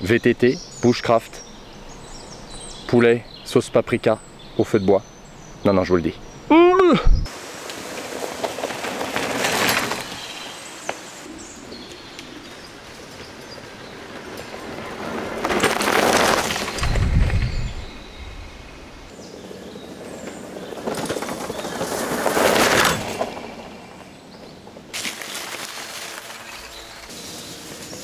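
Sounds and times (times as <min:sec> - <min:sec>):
birds chirping: 0:00.0 - 0:07.3, 0:08.5 - 0:28.0
bike tyres on dirt track: 0:07.3 - 0:28.0.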